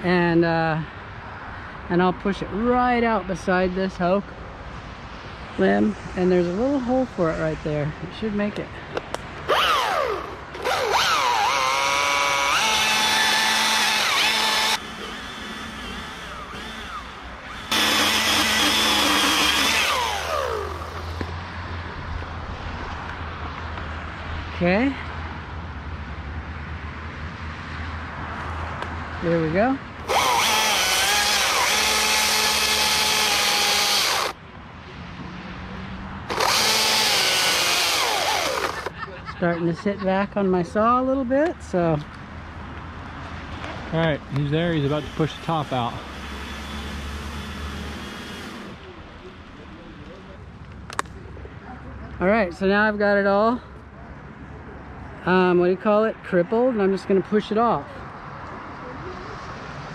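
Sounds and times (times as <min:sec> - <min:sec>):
chainsaw cutting wood: 0:09.5 - 0:21.3, 0:30.0 - 0:34.4, 0:36.3 - 0:38.9, 0:44.7 - 0:48.8.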